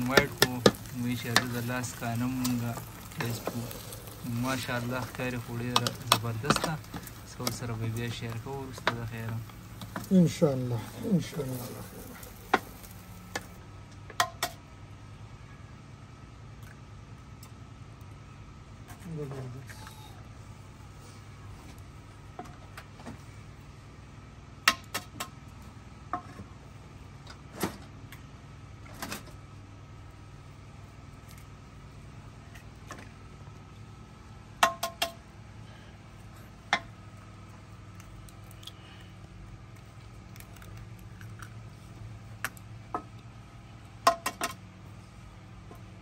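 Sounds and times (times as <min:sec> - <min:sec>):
eggs cracking against bowl: 0:00.0 - 0:13.6, 0:37.6 - 0:43.3
steady low hum: 0:00.0 - 0:46.0.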